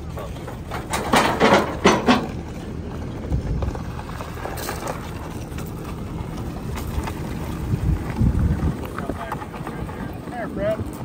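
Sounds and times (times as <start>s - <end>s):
low steady rumble: 0.0s - 11.0s
wheels crunching on gravel: 0.0s - 11.0s
footsteps on gravel: 2.5s - 11.0s.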